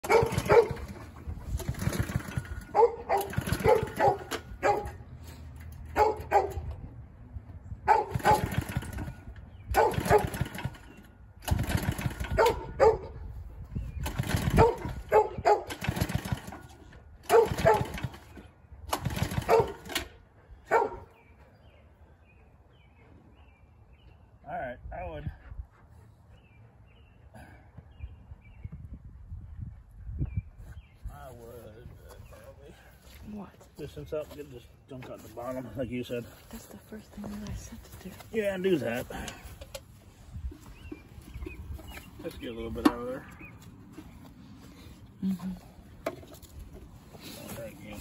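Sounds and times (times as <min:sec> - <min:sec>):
recoil starter cranking whirr: 0:00.0 - 0:05.0, 0:08.1 - 0:12.6, 0:14.0 - 0:20.1.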